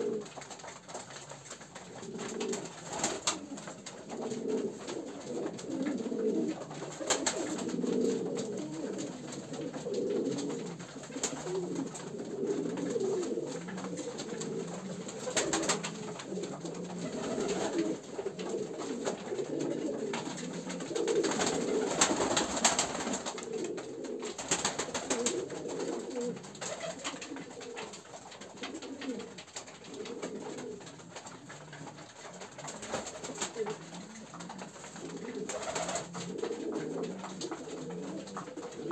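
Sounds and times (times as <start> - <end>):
pigeons cooing: 0.0 - 38.9.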